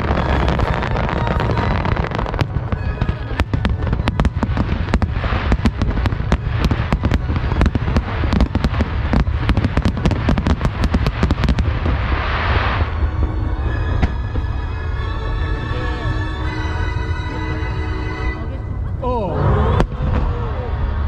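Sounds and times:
fireworks cracking and popping: 0:00.0 - 0:13.1
low rumble: 0:00.0 - 0:21.0.

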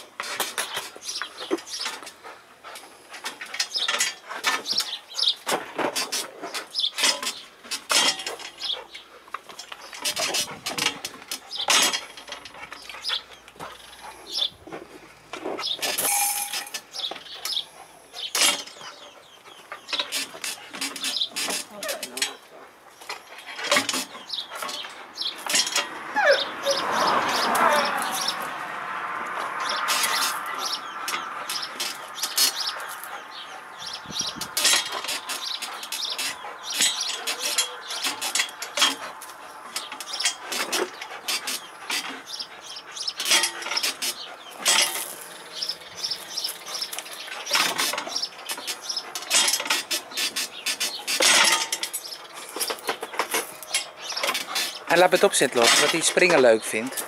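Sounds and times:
rope rig creaking and clicking: 0:00.0 - 0:57.0.

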